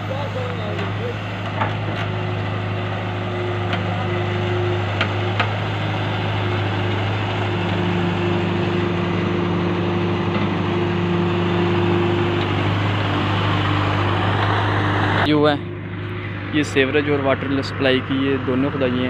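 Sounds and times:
excavator diesel engine running: 0:00.0 - 0:19.0.

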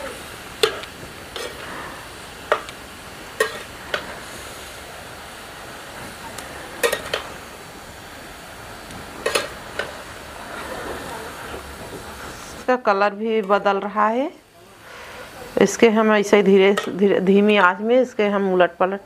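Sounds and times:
food sizzling: 0:00.0 - 0:19.0
metal spatula scraping a pan: 0:00.6 - 0:01.9, 0:03.4 - 0:04.2, 0:06.8 - 0:07.3, 0:09.2 - 0:11.1.

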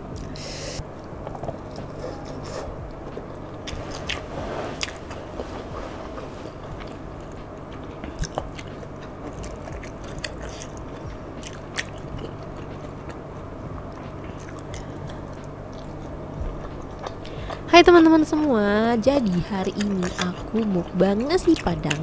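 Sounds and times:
low hum: 0:00.0 - 0:22.0
person chewing food: 0:00.1 - 0:17.7, 0:19.0 - 0:22.0.

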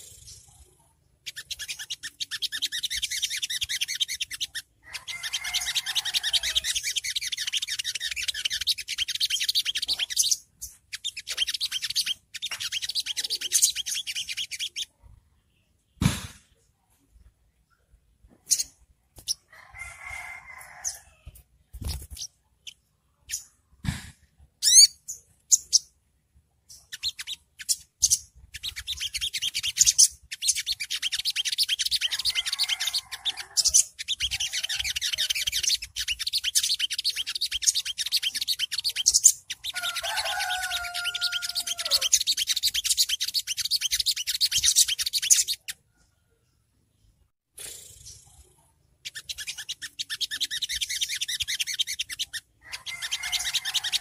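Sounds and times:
bird chips and twitters: 0:00.0 - 0:15.0, 0:20.1 - 0:23.6, 0:24.6 - 0:26.0, 0:26.7 - 0:45.8, 0:47.6 - 0:54.0
high rapid bird trilling: 0:00.0 - 0:15.0, 0:24.6 - 0:26.0, 0:26.7 - 0:45.8, 0:47.6 - 0:54.0.

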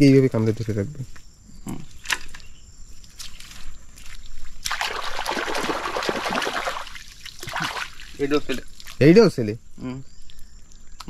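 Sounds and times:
splashing in muddy water: 0:03.1 - 0:09.0.

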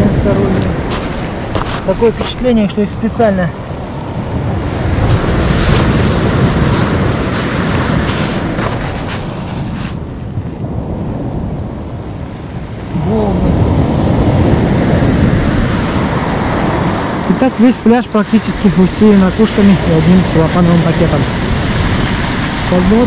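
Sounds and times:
wind buffeting microphone: 0:00.0 - 0:23.0
waves breaking on shingle: 0:00.2 - 0:02.7, 0:04.8 - 0:10.5, 0:13.5 - 0:23.0
footsteps on pebbles: 0:00.6 - 0:02.6.

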